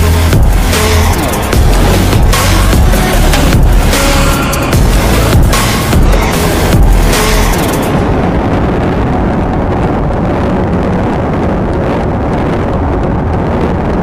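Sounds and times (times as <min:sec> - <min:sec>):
motorcycle engine accelerating: 0:00.0 - 0:09.7
wind rush on microphone: 0:00.0 - 0:14.0.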